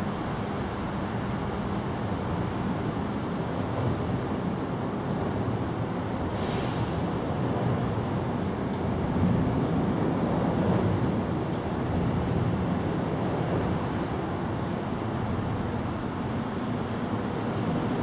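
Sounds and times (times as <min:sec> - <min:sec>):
short hiss: 0:06.4 - 0:07.0.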